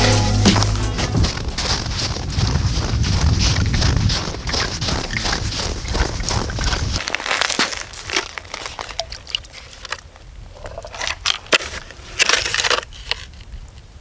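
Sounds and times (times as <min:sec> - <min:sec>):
snow crunching and scraping: 0:00.2 - 0:10.0.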